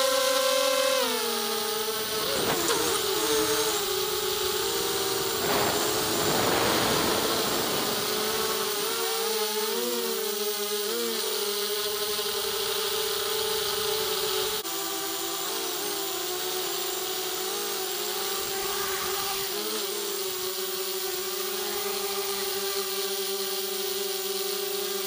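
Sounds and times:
drone motors whining: 0.9s - 9.4s
wind rush: 2.0s - 9.0s.

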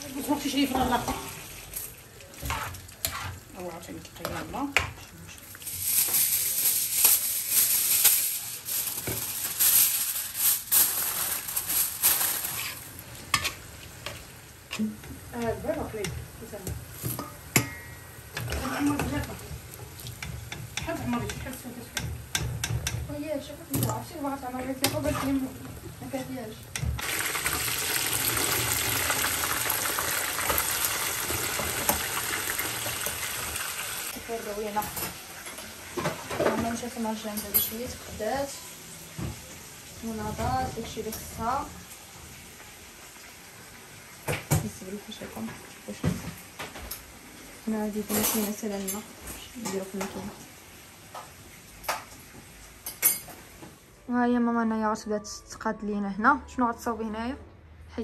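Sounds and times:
food frying in hot oil: 0.0s - 36.4s.

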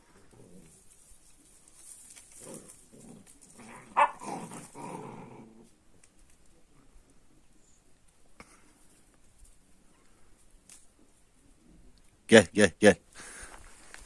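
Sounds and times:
puppies growling: 0.0s - 0.9s, 2.3s - 5.8s
puppy yapping: 3.8s - 4.4s.

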